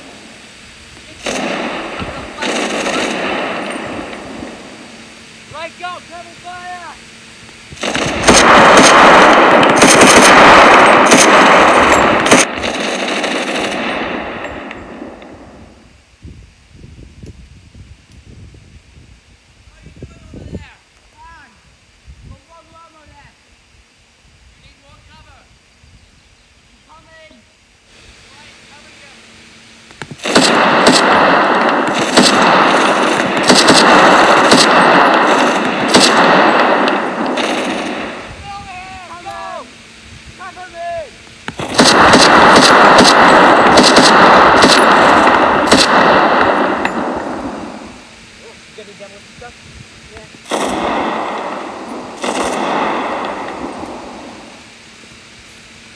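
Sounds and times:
machine-gun fire: 1.1s - 5.0s, 7.8s - 15.8s, 30.2s - 38.4s, 41.5s - 48.1s, 50.4s - 54.7s
single gunshots cracking: 1.2s - 4.8s, 7.8s - 15.6s, 30.1s - 38.3s, 41.5s - 48.1s, 50.4s - 54.6s
gunfire echo: 1.2s - 4.9s, 7.8s - 15.8s, 30.2s - 38.3s, 41.6s - 48.1s, 50.4s - 54.6s.

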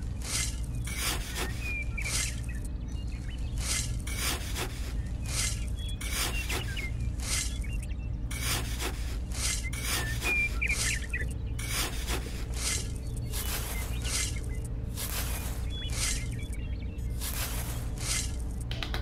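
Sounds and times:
trowel scraping through sand: 0.2s - 2.4s, 3.6s - 7.6s, 8.3s - 16.4s.

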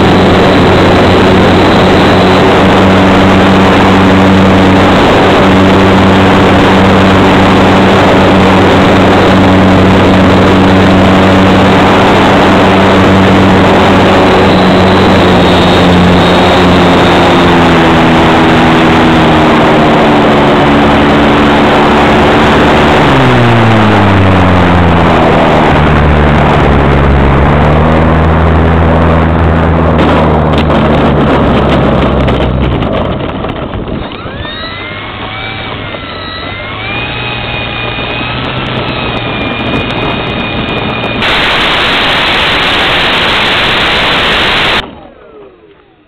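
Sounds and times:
model plane motor and propeller: 0.0s - 46.0s
wind rush: 0.0s - 46.0s
loud steady hiss: 41.2s - 44.8s.

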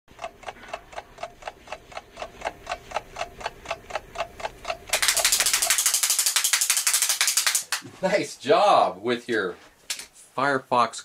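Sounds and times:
clapper toy clacking: 0.1s - 7.8s
fast hand clapping: 4.9s - 7.9s.

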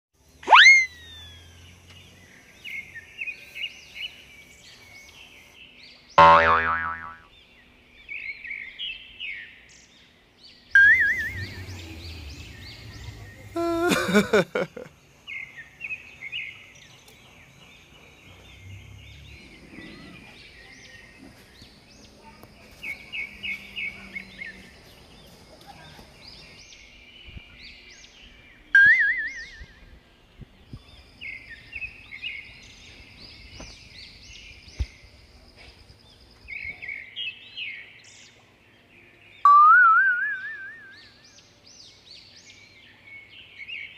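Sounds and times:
birds chirping: 0.2s - 43.9s.

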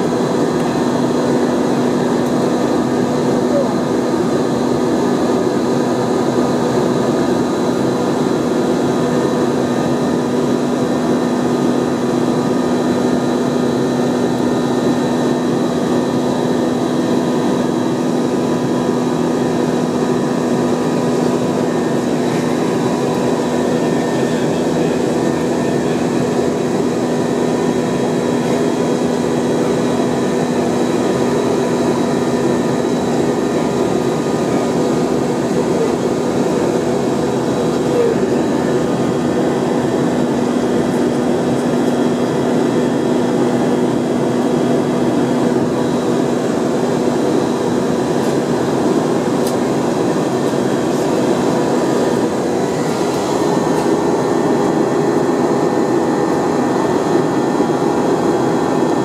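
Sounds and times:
constant hums: 0.0s - 59.0s
jet engine drone: 0.0s - 59.0s.

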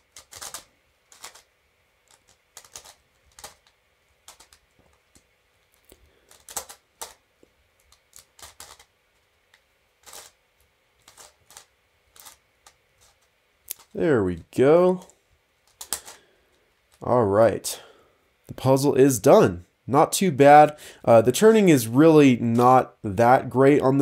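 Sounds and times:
plastic puzzle clicking: 0.1s - 7.2s, 7.8s - 8.9s, 11.0s - 13.9s, 15.0s - 16.2s.

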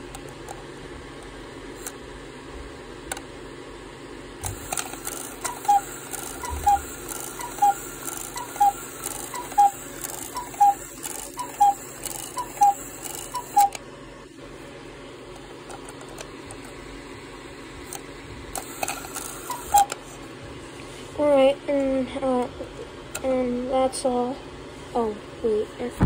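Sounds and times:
fan hum: 0.0s - 26.0s
cuckoo clock calls: 4.5s - 13.8s, 18.6s - 20.0s.

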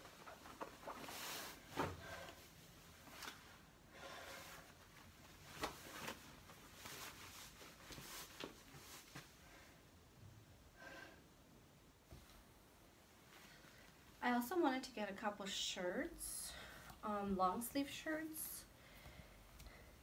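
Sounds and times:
clothing rustling: 0.0s - 9.7s.

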